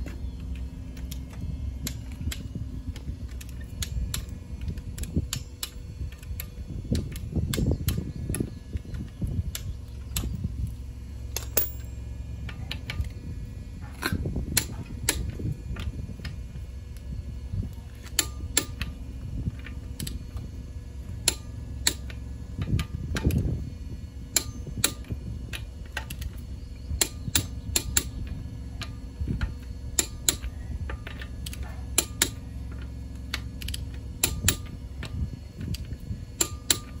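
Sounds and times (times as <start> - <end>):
low rumble: 0.0 - 37.0
socket ratchet clicking: 18.2 - 19.0, 27.0 - 28.2, 28.8 - 34.8, 35.6 - 37.0.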